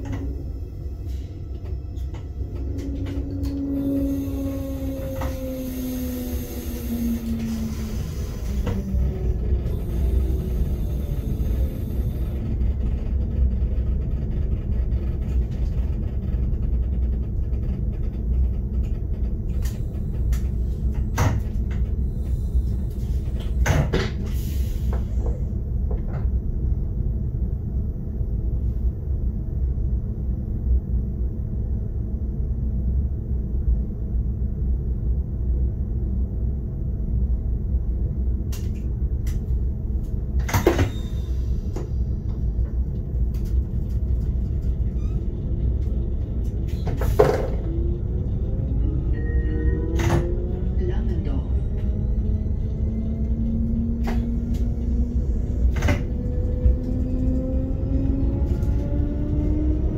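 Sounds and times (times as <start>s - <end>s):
railcar cab rumble: 0.0s - 59.9s.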